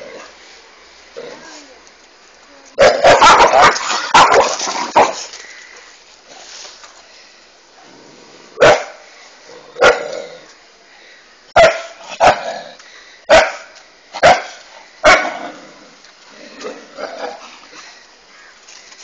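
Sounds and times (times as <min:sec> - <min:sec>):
dog barking: 0:02.8 - 0:05.2, 0:08.6 - 0:09.0, 0:09.8 - 0:10.2, 0:11.6 - 0:12.5, 0:13.3 - 0:15.4.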